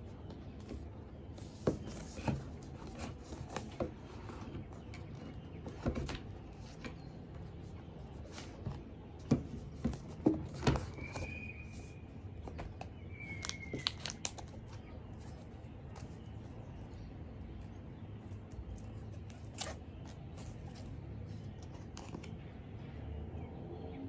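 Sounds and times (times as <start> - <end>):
packaging clicks and rustles: 12.4 - 16.3.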